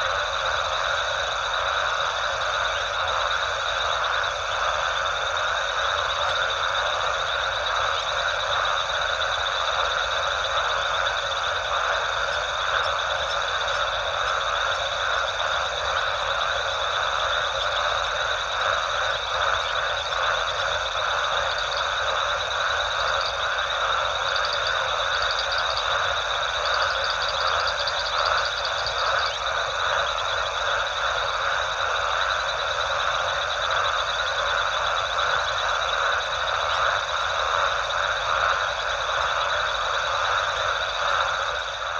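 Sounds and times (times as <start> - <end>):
frogs calling: 0.0 - 41.9.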